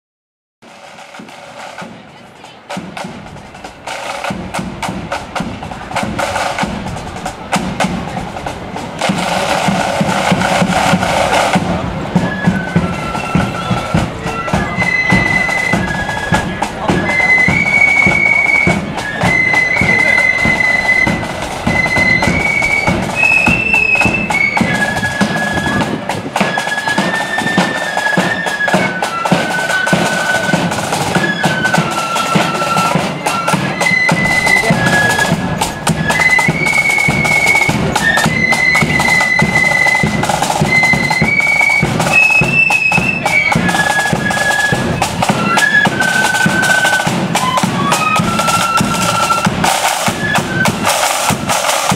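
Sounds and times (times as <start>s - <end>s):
flute melody: 0.6s - 51.9s
side drums and bass drum beat: 0.6s - 51.9s.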